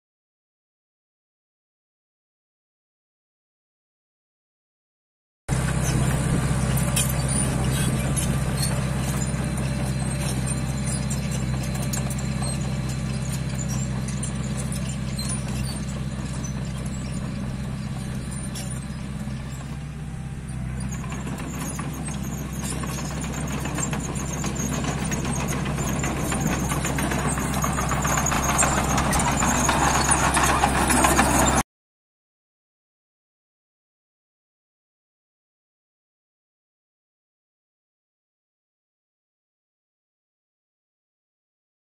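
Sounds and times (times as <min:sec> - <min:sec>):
bulldozer diesel engine running: 0:05.5 - 0:31.6
steel tracks clanking and squeaking: 0:05.5 - 0:31.6.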